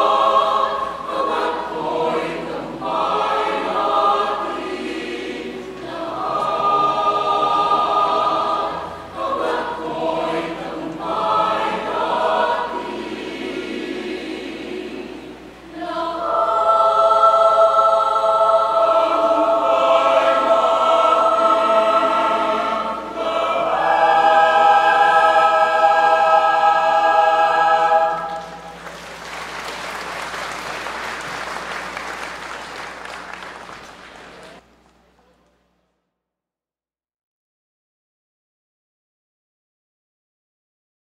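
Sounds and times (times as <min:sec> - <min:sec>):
mixed choir singing: 0:00.0 - 0:29.1
audience applause: 0:28.3 - 0:34.6.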